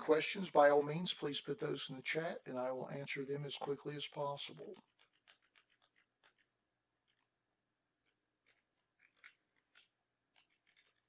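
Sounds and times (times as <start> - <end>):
mouse scroll wheel ticking: 4.9 - 7.2, 8.0 - 11.0.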